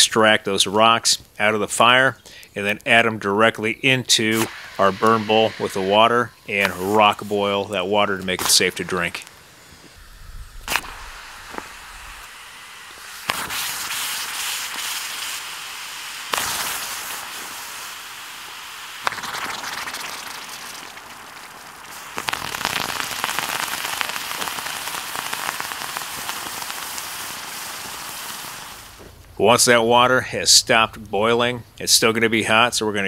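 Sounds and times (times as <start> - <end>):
water hissing and crackling boil: 0.0 - 33.0
hot rocks splashing into water: 16.3 - 29.1.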